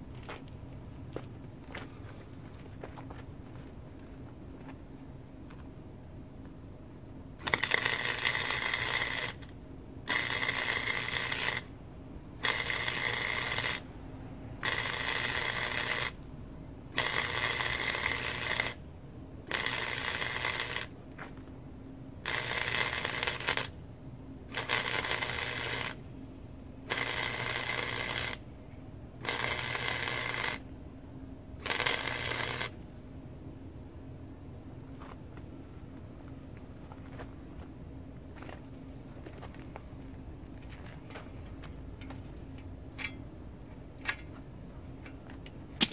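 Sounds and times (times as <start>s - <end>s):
welder arc crackling: 7.4s - 9.5s, 10.1s - 11.7s, 12.4s - 13.9s, 14.6s - 16.2s, 17.0s - 18.8s, 19.5s - 20.9s, 22.2s - 23.7s, 24.6s - 26.0s, 26.9s - 28.4s, 29.2s - 30.6s, 31.6s - 32.8s.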